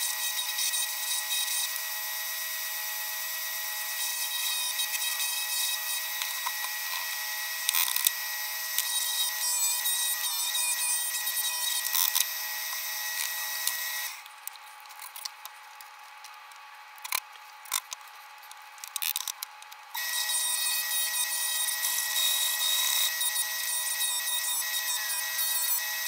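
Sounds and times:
drill press sanding whine: 0.0 - 14.2, 20.0 - 26.0.

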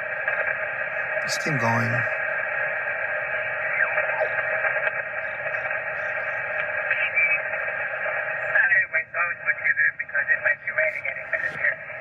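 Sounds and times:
radio static hiss: 0.0 - 12.0
garbled radio signals: 1.2 - 2.2, 10.5 - 12.0.

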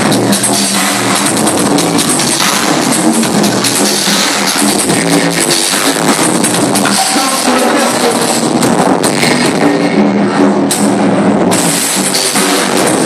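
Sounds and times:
loud club music with drum beat: 0.0 - 13.0.

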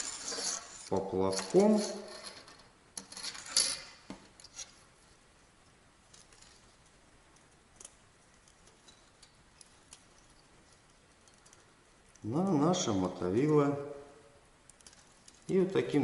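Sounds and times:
small plastic clicks and rustles: 6.0 - 12.3, 14.6 - 15.6.

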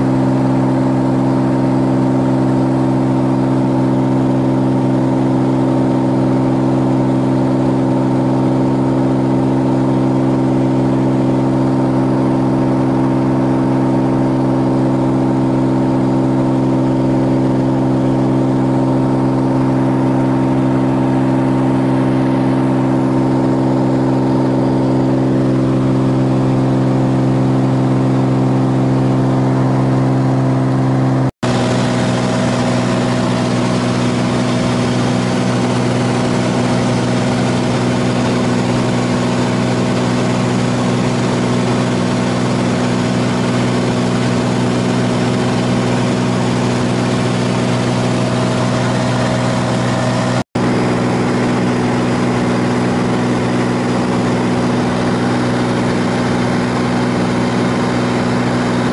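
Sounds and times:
airplane engine and propeller drone: 0.0 - 58.9.

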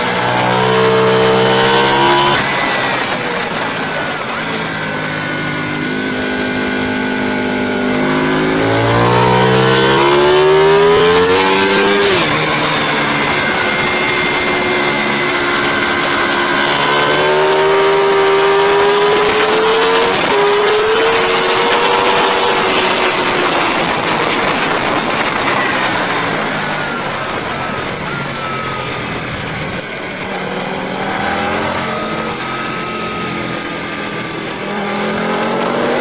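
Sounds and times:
racing motorcycle engine: 0.0 - 36.0
wind rush: 18.2 - 35.9.

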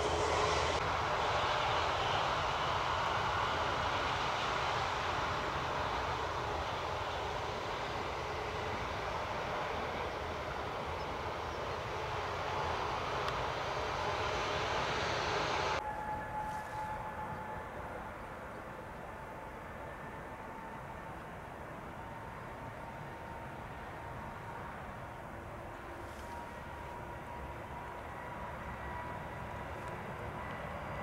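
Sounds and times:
jet engines roaring: 0.0 - 15.8
distant jet noise: 0.0 - 31.0.

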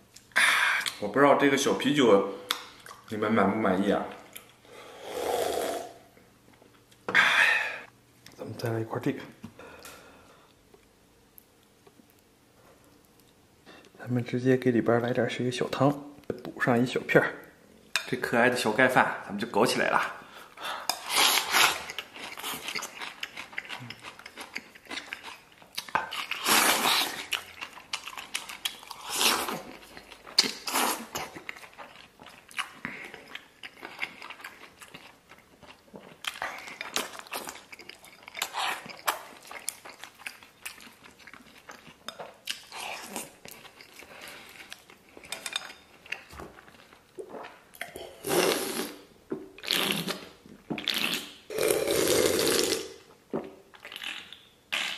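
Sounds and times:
man chewing: 20.5 - 52.8.

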